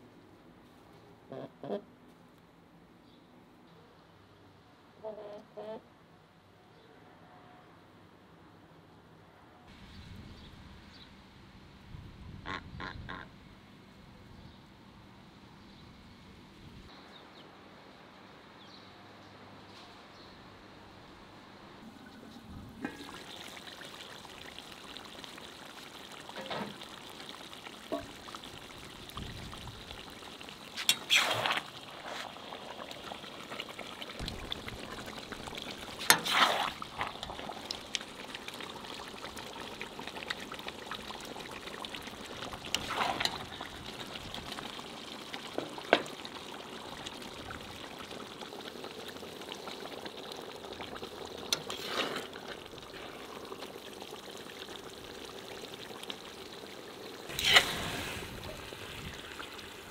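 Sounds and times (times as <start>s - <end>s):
sauce trickling and pouring: 22.8s - 59.9s
metal skimmer scraping a pot: 30.8s - 32.3s, 36.0s - 37.2s, 57.3s - 58.6s.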